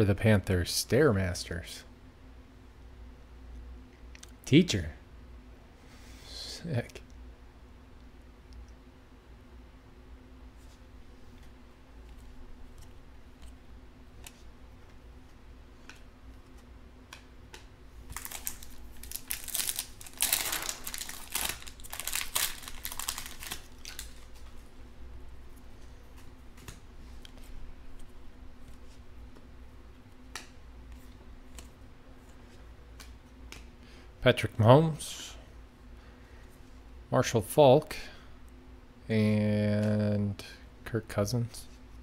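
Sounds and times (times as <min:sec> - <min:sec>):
foil pack tearing and crinkling: 0:18.1 - 0:24.3
cards clicking while handled: 0:32.9 - 0:33.7.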